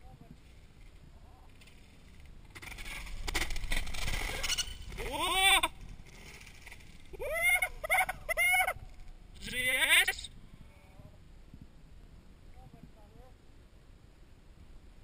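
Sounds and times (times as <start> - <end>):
bike rattling over dirt trail: 0.0 - 9.3
bike crashing: 0.8 - 9.1.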